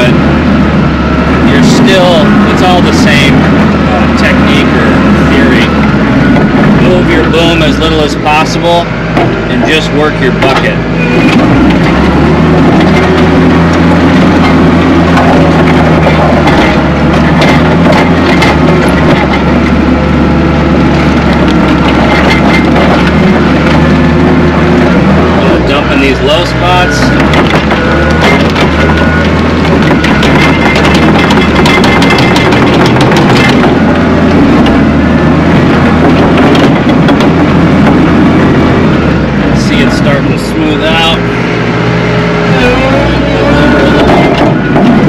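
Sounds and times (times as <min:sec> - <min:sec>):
skid steer engine running: 0:00.0 - 0:45.0
machine clicks and rattles: 0:10.4 - 0:19.8, 0:21.0 - 0:23.9, 0:27.2 - 0:34.8.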